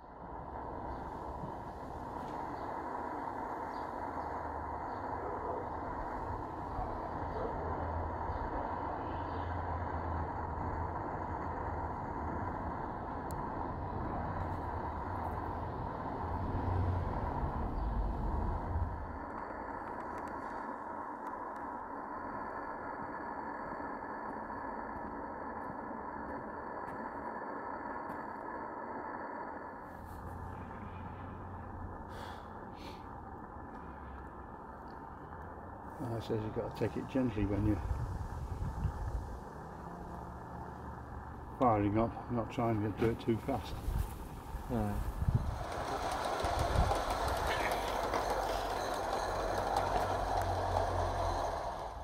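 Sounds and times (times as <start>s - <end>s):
steam boiler hissing: 0.0s - 52.0s
wheels clicking over rails: 31.6s - 52.0s.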